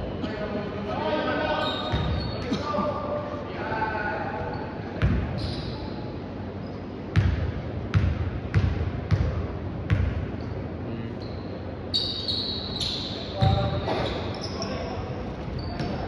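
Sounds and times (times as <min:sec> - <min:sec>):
basketball bouncing on court: 0:01.9 - 0:02.3, 0:05.0 - 0:05.4, 0:07.1 - 0:10.3, 0:13.4 - 0:13.8
short high squeal: 0:11.2 - 0:15.0.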